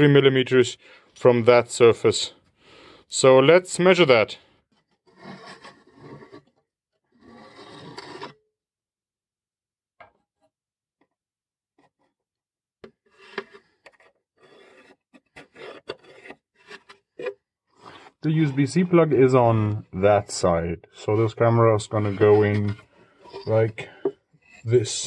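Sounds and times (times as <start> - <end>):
rule scraping over plywood: 4.6 - 8.4, 12.9 - 19.9, 21.0 - 25.0
pencil marking wood: 4.7 - 6.5, 13.0 - 18.3, 21.1 - 24.7.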